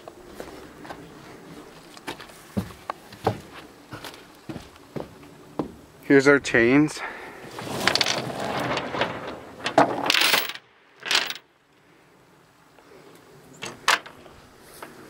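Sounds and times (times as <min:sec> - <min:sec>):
chains rattling on metal deck: 0:07.6 - 0:11.4.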